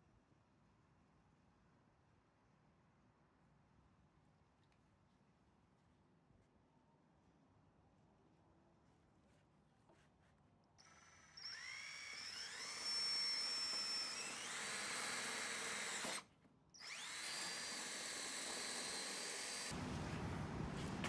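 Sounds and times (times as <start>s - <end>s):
power drill whining: 10.8s - 19.8s.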